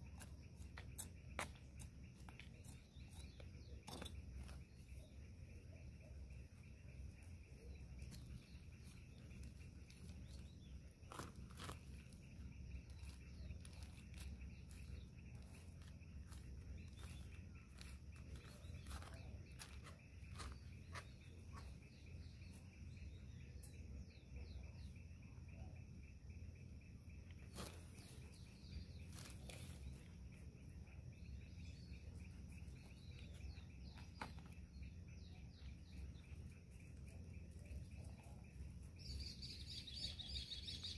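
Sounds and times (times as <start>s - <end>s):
small birds chirping: 0.0s - 40.9s
hands pressing soil into pot: 8.0s - 21.7s.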